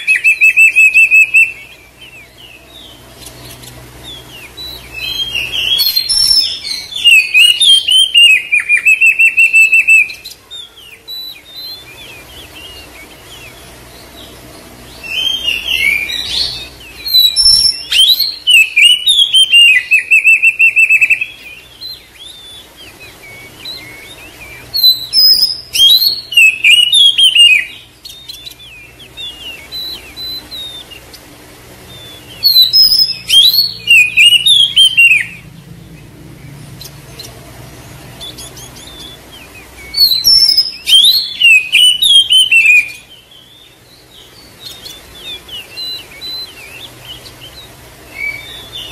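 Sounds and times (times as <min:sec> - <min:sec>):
bird buzzing trills: 0:00.0 - 0:48.9
bird whistling song: 0:00.0 - 0:48.9.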